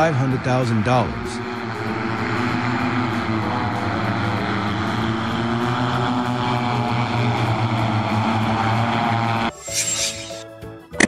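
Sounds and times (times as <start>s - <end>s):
rushing air: 0.0s - 8.8s
multicopter rotors humming: 0.0s - 10.4s.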